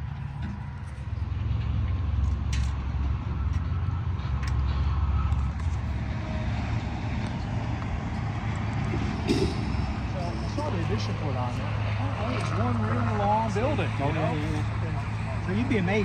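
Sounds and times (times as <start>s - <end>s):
highway traffic rumble: 0.0s - 16.0s.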